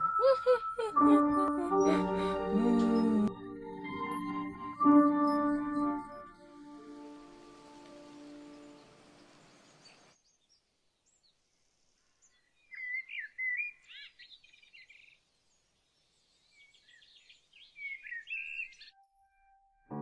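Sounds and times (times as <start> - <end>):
music: 0.0 - 9.0, 19.0 - 20.0
birds chirping and singing: 16.2 - 18.9.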